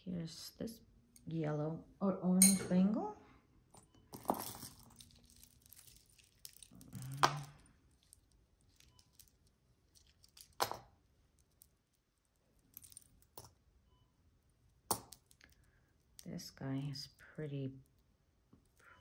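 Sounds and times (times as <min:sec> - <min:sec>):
jewelry clicking and clinking: 0:02.4 - 0:02.9, 0:03.7 - 0:13.6, 0:14.6 - 0:16.4.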